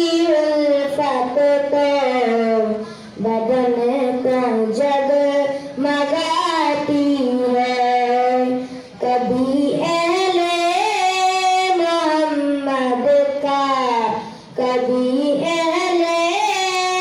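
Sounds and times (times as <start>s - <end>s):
boy singing a hymn: 0.0s - 17.0s
breath: 2.8s - 3.2s, 5.5s - 5.8s, 8.6s - 9.0s, 14.2s - 14.6s.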